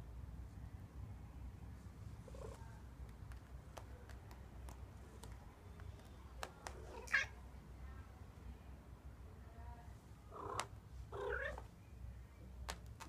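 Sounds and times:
cat calling: 6.8s - 7.4s, 10.3s - 11.7s.

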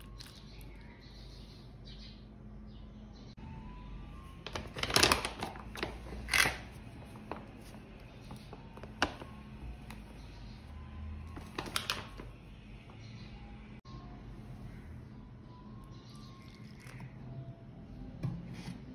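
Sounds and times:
plastic bag crinkling: 4.4s - 9.3s, 11.4s - 12.3s.

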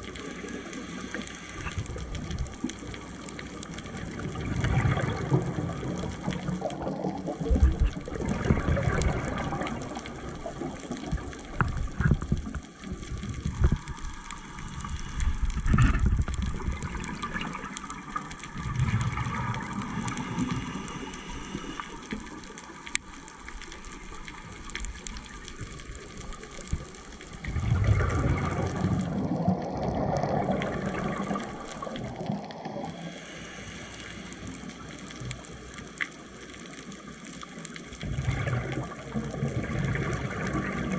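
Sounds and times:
underwater rushing hiss: 0.0s - 3.1s, 13.1s - 22.8s, 27.3s - 35.4s
diver exhaling bubbles underwater: 4.2s - 12.4s, 13.1s - 21.5s, 27.4s - 33.4s, 38.0s - 40.9s.

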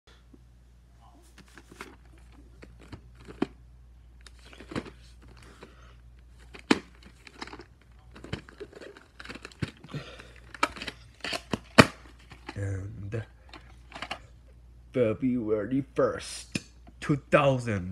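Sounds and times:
plastic cases clicking and rattling: 1.3s - 3.6s, 4.2s - 12.6s, 13.4s - 14.2s.

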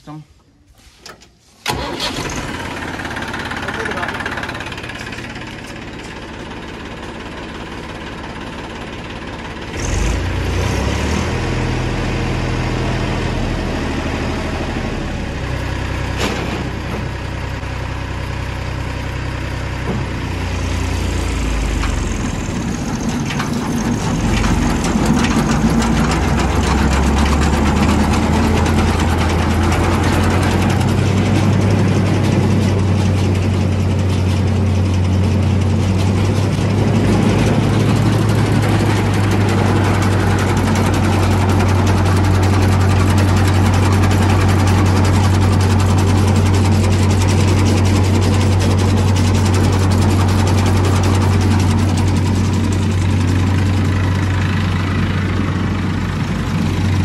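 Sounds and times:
tractor engine running: 1.0s - 57.0s
reaper machinery running: 1.7s - 57.0s.

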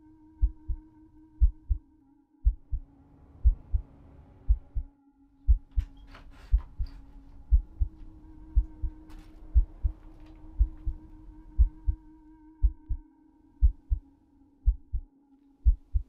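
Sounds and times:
low drone: 0.0s - 16.0s
heartbeat double thumps: 0.4s - 0.8s, 1.4s - 1.8s, 2.4s - 2.8s, 3.4s - 3.8s, 4.5s - 4.9s, 5.5s - 5.9s, 6.5s - 6.9s, 7.5s - 8.0s, 8.6s - 9.0s, 9.6s - 9.9s, 10.6s - 11.0s, 11.6s - 12.0s, 12.6s - 13.0s, 13.6s - 14.0s, 14.6s - 16.0s.

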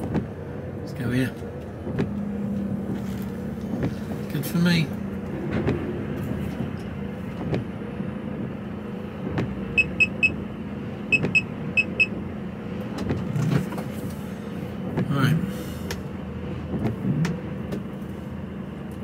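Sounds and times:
diesel engine droning: 0.0s - 19.0s
short electronic beeps: 9.8s - 10.4s.

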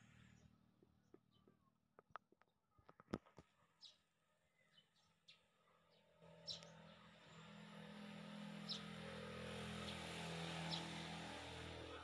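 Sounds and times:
low engine hum: 6.2s - 12.0s.

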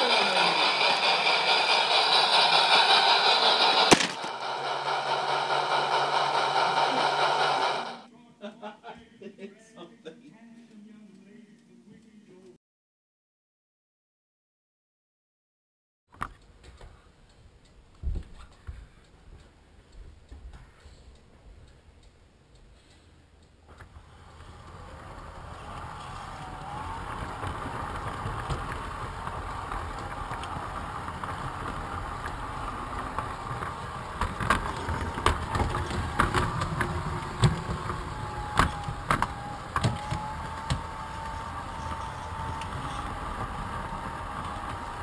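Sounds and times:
model train rolling rumble: 0.0s - 8.1s, 23.7s - 45.0s
wheels clicking over track: 0.0s - 8.1s, 23.7s - 45.0s
faint wavering motor whine: 23.8s - 45.0s.

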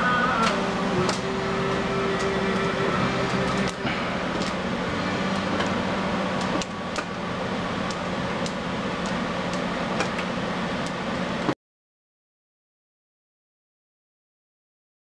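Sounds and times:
steady mechanical hum: 0.0s - 11.6s.

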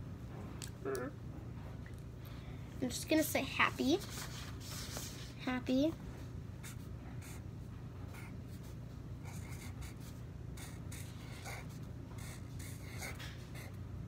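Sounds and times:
marker pen scratching: 8.2s - 13.8s.

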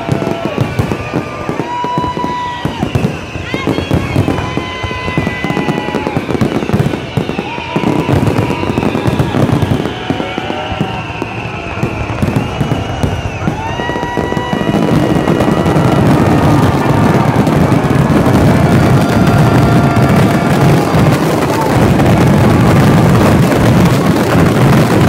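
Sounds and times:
fireworks banging and crackling: 0.0s - 25.0s.

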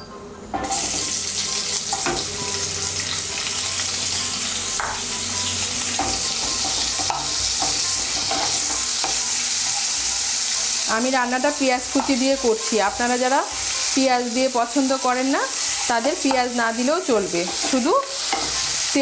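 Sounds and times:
onion sizzling in oil: 0.5s - 19.0s
spatula scraping and tapping pan: 6.0s - 10.7s.

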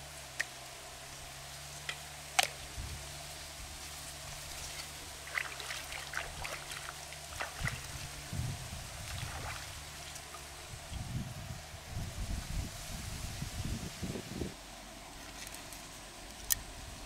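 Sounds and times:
hands splashing in shallow water: 5.2s - 8.0s, 9.0s - 10.4s.

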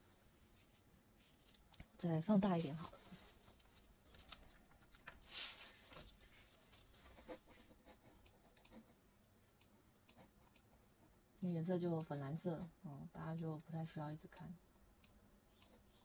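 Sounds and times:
soft rustle: 0.2s - 9.0s.

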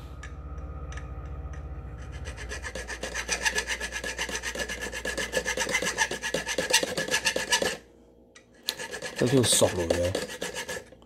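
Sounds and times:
metal file rasping on metal: 2.0s - 7.8s, 8.6s - 11.0s.

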